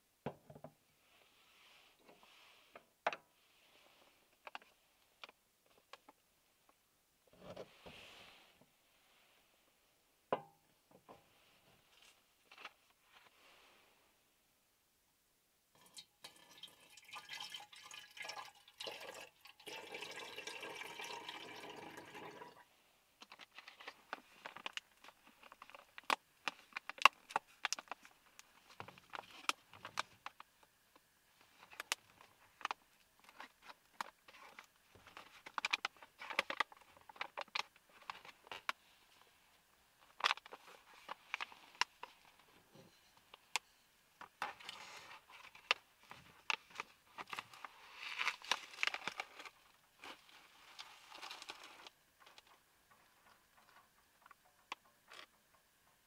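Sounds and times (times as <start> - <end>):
liquid pouring into metal bottle: 15.8 - 22.6
foil pouch crinkling: 46.5 - 51.9.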